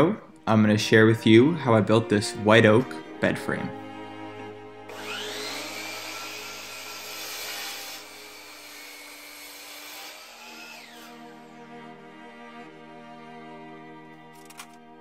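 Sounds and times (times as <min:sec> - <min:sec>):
miter saw motor whine: 0:04.9 - 0:11.6
saw cutting wood: 0:04.9 - 0:11.8.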